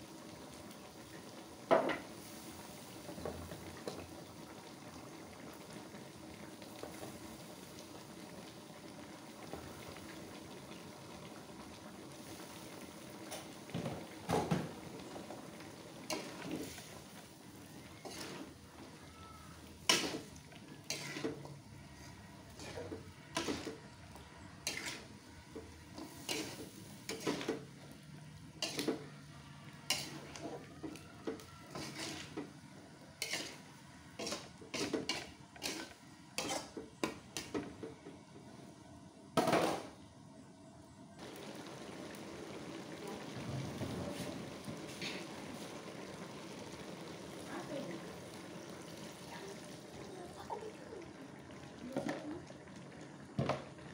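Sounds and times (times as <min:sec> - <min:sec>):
food sizzling: 0:00.0 - 0:38.8, 0:41.1 - 0:53.9
spatula scraping a wok: 0:16.0 - 0:17.1, 0:17.8 - 0:23.8, 0:24.4 - 0:27.8, 0:28.5 - 0:29.1, 0:29.8 - 0:37.7, 0:44.2 - 0:45.9.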